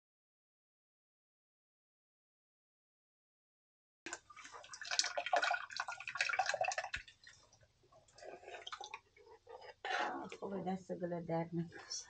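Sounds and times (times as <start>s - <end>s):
water splashing and dripping: 4.1s - 9.1s.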